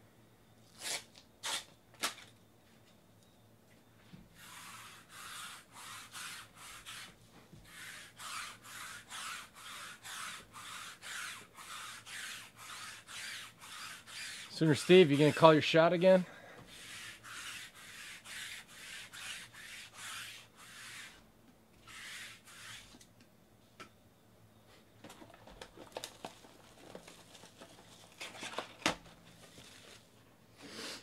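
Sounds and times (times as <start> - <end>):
rapid rubbing strokes: 4.4 - 21.2, 21.8 - 23.0.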